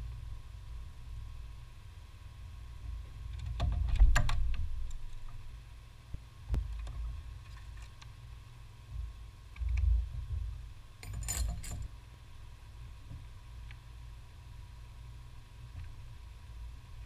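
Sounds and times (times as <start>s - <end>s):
hand tool clinking on metal: 11.0s - 11.9s.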